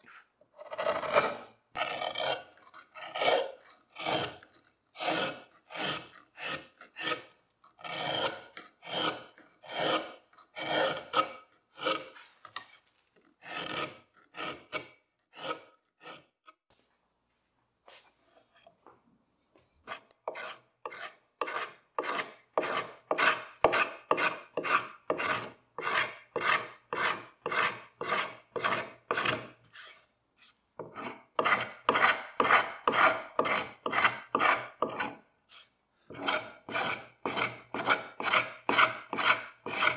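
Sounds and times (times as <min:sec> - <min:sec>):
carving tool scraping wood: 0:00.0 - 0:16.6, 0:19.8 - 0:39.9.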